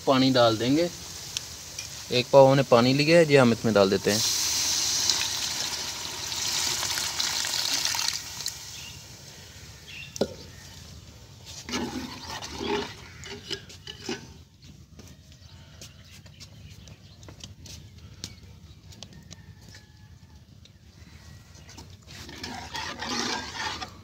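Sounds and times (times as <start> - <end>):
water hissing in hot pot: 0.0 - 10.0
ladle scraping in pot: 11.5 - 14.4, 22.1 - 24.0.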